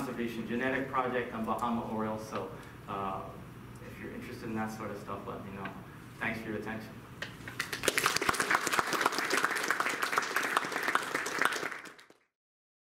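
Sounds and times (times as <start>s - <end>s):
audience applauding: 7.6s - 12.3s.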